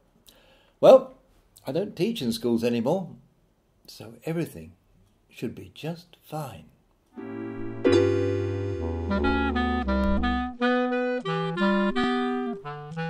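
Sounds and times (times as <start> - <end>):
low sustained bass notes: 7.2 - 10.6
clarinet tune: 7.2 - 13.0.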